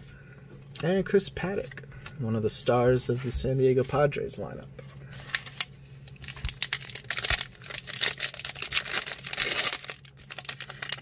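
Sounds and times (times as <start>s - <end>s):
plastic wrapper tearing and crinkling: 5.2s - 11.0s.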